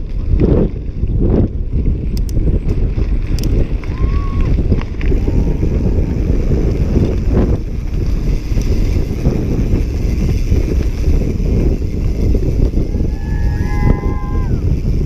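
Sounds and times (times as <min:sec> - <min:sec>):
bike rolling over gravel: 0:00.0 - 0:15.0
wind buffeting microphone: 0:00.0 - 0:15.0.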